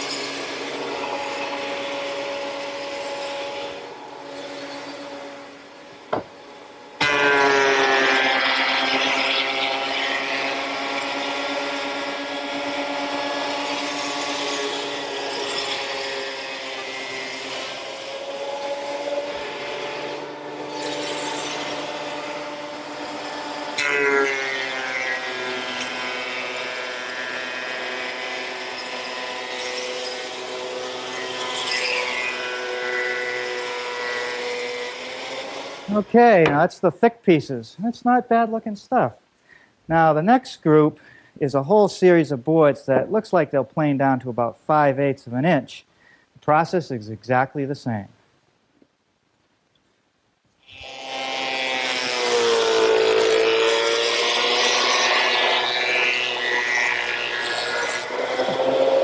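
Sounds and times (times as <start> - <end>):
thickness planer motor whine: 0.0 - 36.6, 50.6 - 59.0
planer knives cutting wood: 7.0 - 36.7, 50.6 - 59.0.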